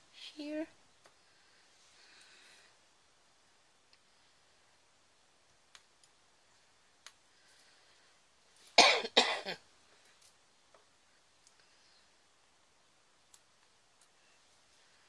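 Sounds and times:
person coughing: 0:08.8 - 0:09.6.

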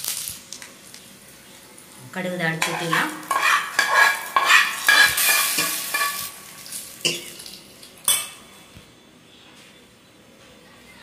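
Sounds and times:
hot oil sizzling in liquid: 0:00.0 - 0:08.1
metal spoon scraping a pan: 0:02.6 - 0:08.2.

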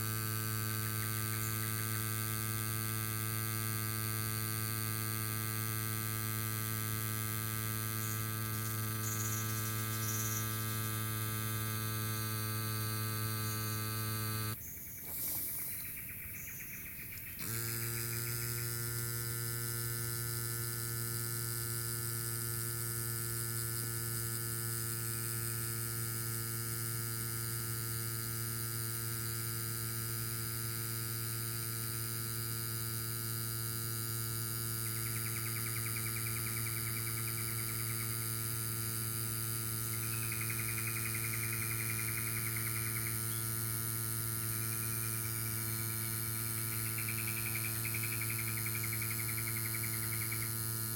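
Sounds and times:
electric tyre pump humming: 0:00.0 - 0:15.9, 0:17.1 - 0:50.9.

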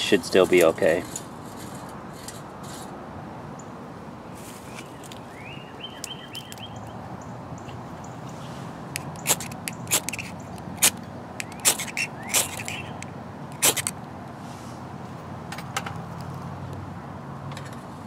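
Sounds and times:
faint handling sounds: 0:04.3 - 0:05.3
striker scraping ferrocerium rod: 0:09.0 - 0:13.9.

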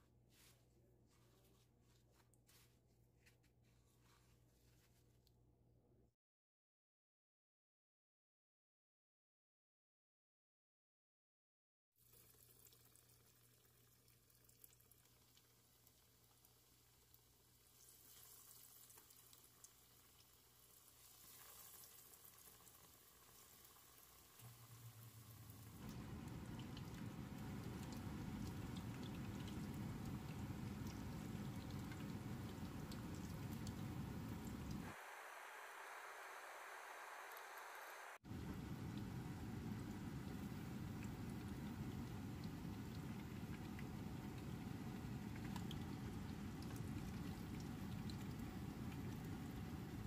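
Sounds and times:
chicken sizzling in hot oil: 0:12.0 - 0:50.0
low steady hum: 0:24.4 - 0:50.0.

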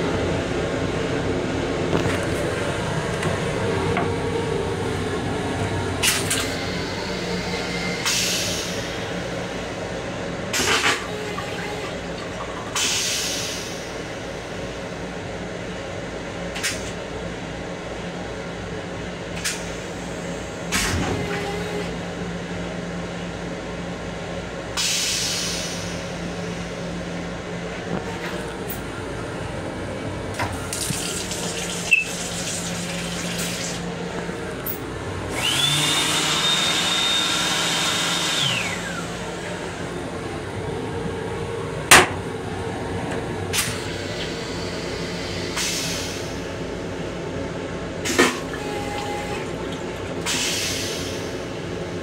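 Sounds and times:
railcar rumble: 0:00.0 - 0:52.0
toilet flush hissing rushes: 0:10.6 - 0:14.2, 0:30.5 - 0:34.0, 0:35.3 - 0:39.7, 0:48.1 - 0:51.6.

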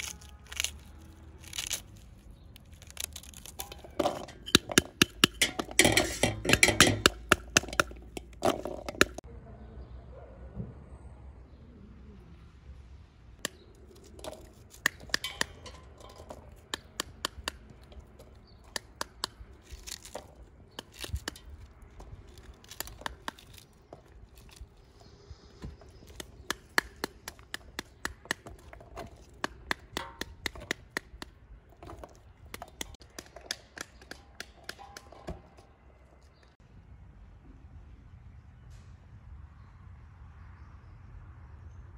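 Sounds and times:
pomegranate peel cracking: 0:00.0 - 0:09.2, 0:13.4 - 0:36.6.

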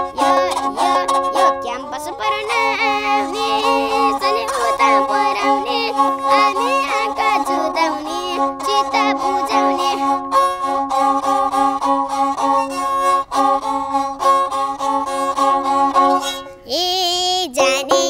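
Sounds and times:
child singing a long note: 0:00.0 - 0:10.2, 0:16.6 - 0:18.0
bowed folk fiddle: 0:00.0 - 0:16.9, 0:17.6 - 0:18.0.

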